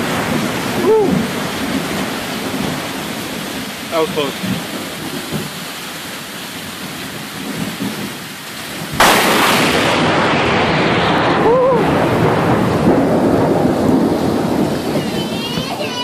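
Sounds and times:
heavy rain falling: 0:00.0 - 0:16.0
thunderclap and rumble: 0:00.0 - 0:16.0.

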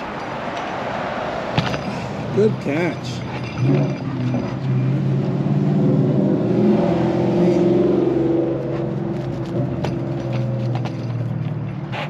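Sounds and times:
vehicle engine humming: 0:00.0 - 0:12.0.

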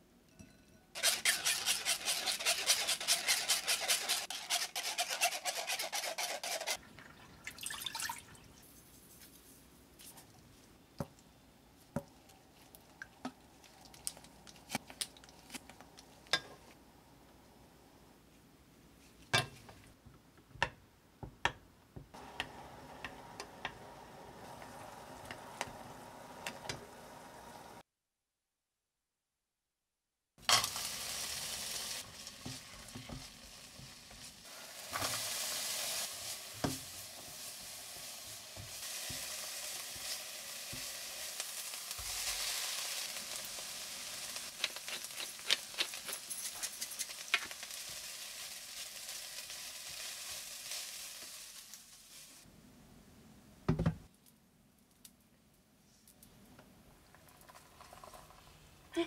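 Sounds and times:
chopsticks rasping on mesh sieve: 0:01.0 - 0:06.8
spoon stirring sauce in saucepan: 0:01.0 - 0:07.1.

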